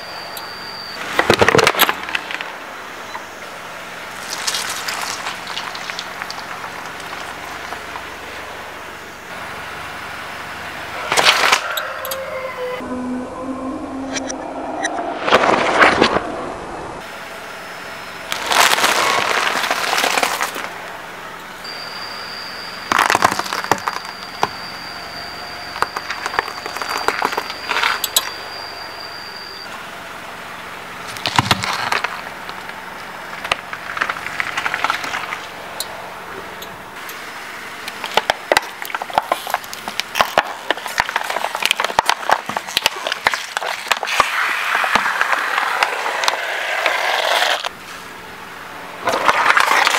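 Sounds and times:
crunching and crackling: 4.0 - 8.7, 18.3 - 20.8, 22.9 - 24.6, 31.0 - 35.9, 37.8 - 47.7, 49.0 - 49.9
thin high tone: 10.9 - 18.3, 23.8 - 29.7
tyre crushing objects: 18.3 - 20.8, 38.0 - 47.6.

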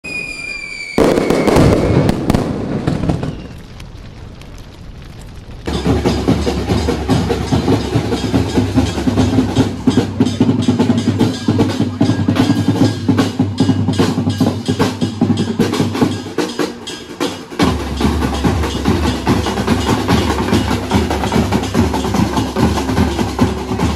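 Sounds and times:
loud burst: 0.0 - 7.5
firecrackers cracking: 0.0 - 23.9
music: 5.7 - 23.9.

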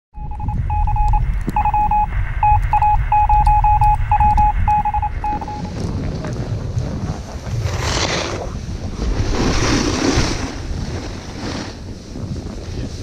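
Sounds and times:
electronic beeps: 0.2 - 5.8
wind on microphone: 0.2 - 13.0.

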